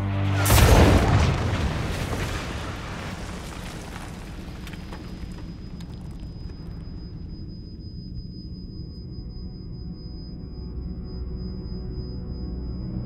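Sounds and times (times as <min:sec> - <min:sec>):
grenade explosion: 0:00.4 - 0:06.2
high ringing tone: 0:05.2 - 0:13.0.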